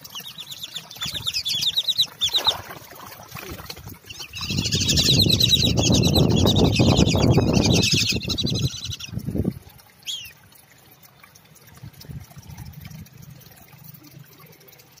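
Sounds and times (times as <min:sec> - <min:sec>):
hose water splashing: 0:00.0 - 0:15.0
ducks whistling calls: 0:04.1 - 0:09.2.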